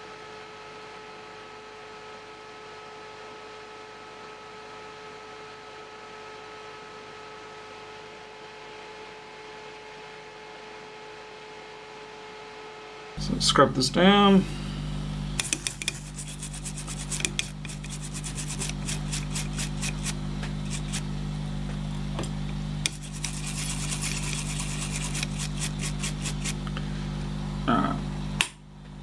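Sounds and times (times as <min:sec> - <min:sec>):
bristle brush scrubbing: 0:15.4 - 0:21.1, 0:22.9 - 0:26.6.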